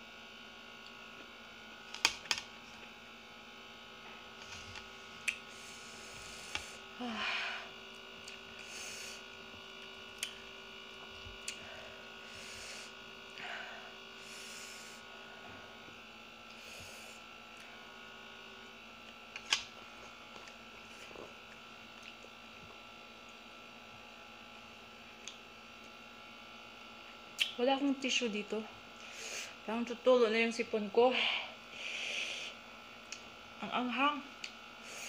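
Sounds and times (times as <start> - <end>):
electrical buzz: 0.0 - 23.0.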